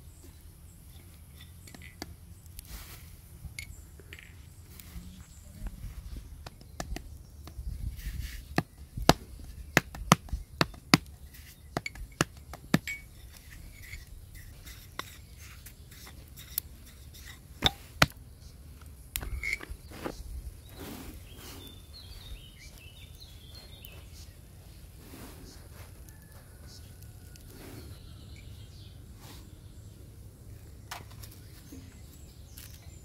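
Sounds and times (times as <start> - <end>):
bird chirping: 3.6 - 33.0
wind rumble on microphone: 4.8 - 10.6.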